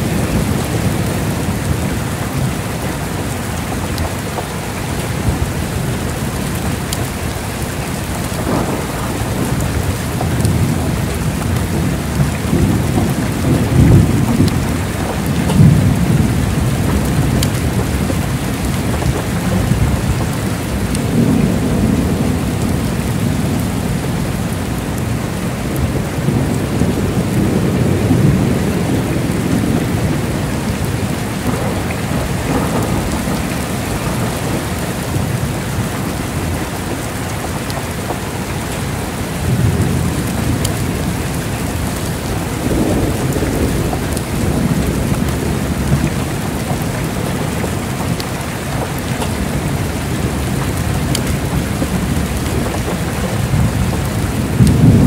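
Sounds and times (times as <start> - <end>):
heavy rain falling: 0.0 - 55.0
thunder rumbling: 0.0 - 55.0.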